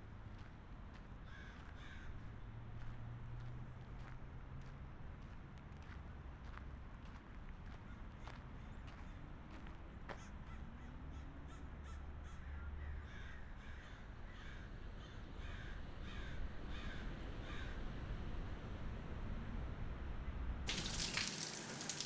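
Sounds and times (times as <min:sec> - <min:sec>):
crow cawing: 0:01.3 - 0:02.2, 0:10.1 - 0:17.8.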